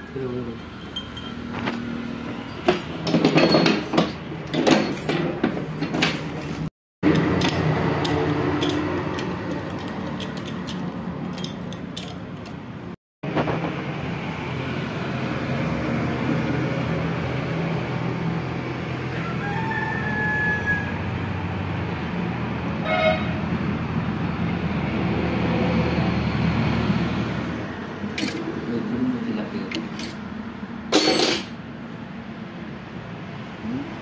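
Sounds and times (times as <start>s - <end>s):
metal tools clinking and rattling: 0.5s - 1.8s, 2.5s - 12.6s, 28.2s - 28.5s, 29.7s - 30.2s, 30.9s - 31.6s.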